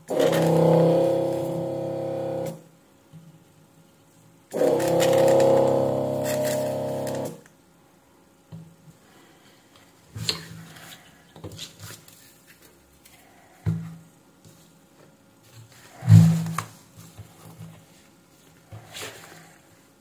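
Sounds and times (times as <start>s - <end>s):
vacuum pump humming: 0.0s - 2.7s, 4.5s - 7.5s.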